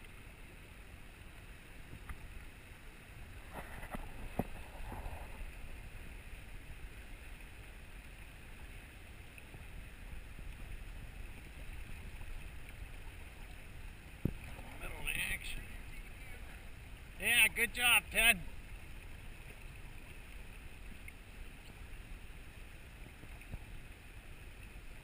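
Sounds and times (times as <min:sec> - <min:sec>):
river current rushing: 0:00.0 - 0:25.0
wind rumble on microphone: 0:03.4 - 0:06.0.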